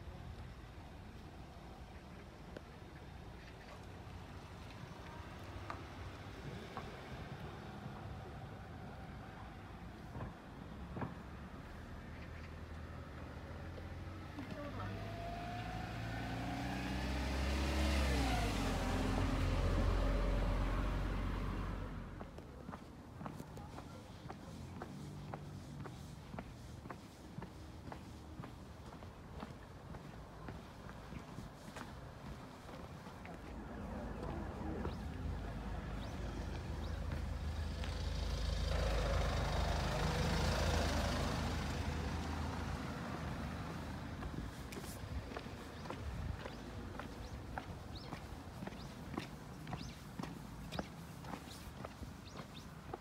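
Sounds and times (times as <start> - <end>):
car driving past: 11.4 - 22.4, 32.3 - 53.0
vehicle passing by: 11.5 - 22.4, 24.5 - 53.0
low engine rumble: 16.4 - 53.0.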